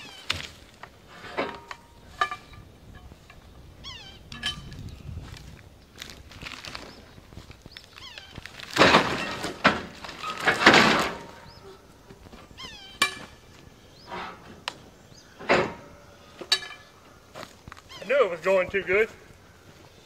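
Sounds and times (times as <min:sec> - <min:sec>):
log crashing and scraping: 0:04.4 - 0:11.6.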